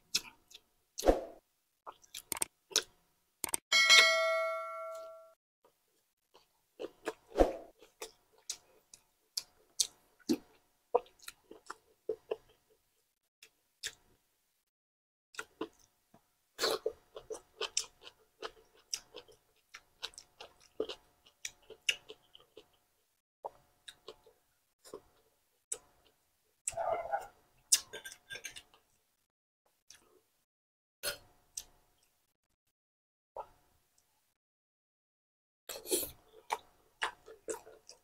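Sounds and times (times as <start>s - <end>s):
person chewing with wet clicks: 0.1s - 0.6s, 1.9s - 2.9s, 7.8s - 12.6s, 13.8s - 14.0s, 15.4s - 15.9s, 16.6s - 22.8s, 23.5s - 26.2s, 36.0s - 38.0s.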